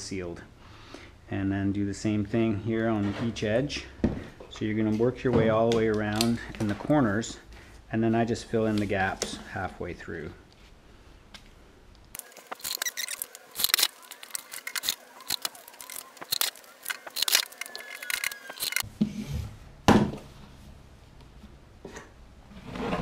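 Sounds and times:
plastic sheet handled: 12.2 - 18.8.

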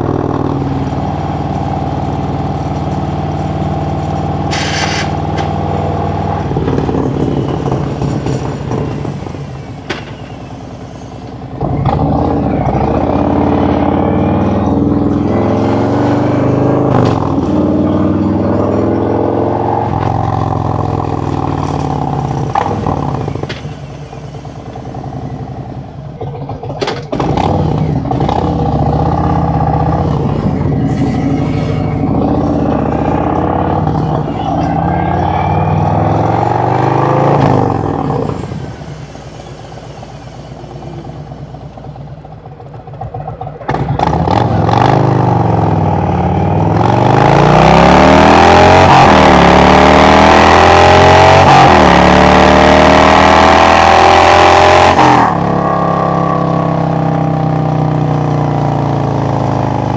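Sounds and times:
motorcycle engine running: 41.5 - 46.8.

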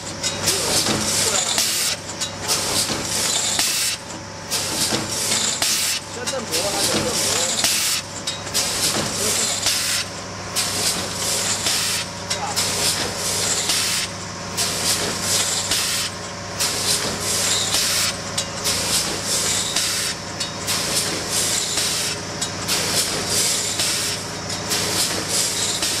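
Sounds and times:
machine humming: 0.0 - 26.0.

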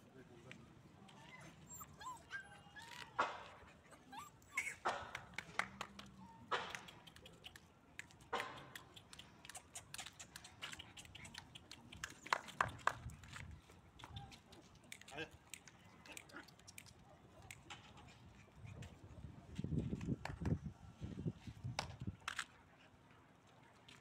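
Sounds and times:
puppies yipping and whimpering: 1.2 - 5.1
paws scuffling on concrete: 6.8 - 20.1.

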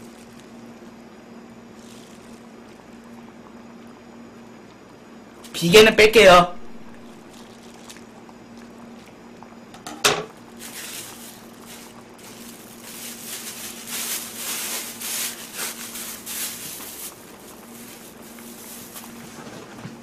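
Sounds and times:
plastic bag rustling: 0.0 - 0.6, 1.7 - 2.8, 6.9 - 8.2, 10.3 - 20.0
steady hum: 0.0 - 20.0.

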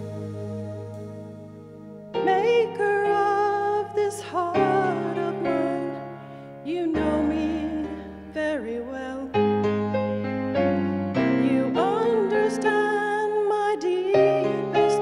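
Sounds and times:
piano chords: 0.0 - 15.0
woman singing with vibrato: 2.2 - 6.0, 6.6 - 9.4, 11.4 - 15.0.

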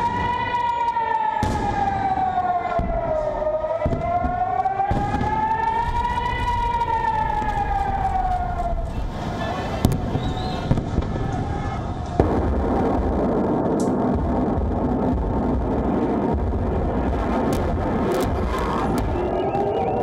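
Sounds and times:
air-raid siren wailing: 0.0 - 12.3, 17.7 - 20.0.

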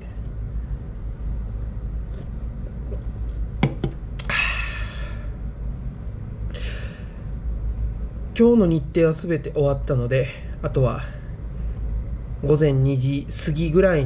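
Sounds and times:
steady low hum: 0.0 - 14.0
person exhaling breathily: 4.2 - 5.3, 6.5 - 7.3.

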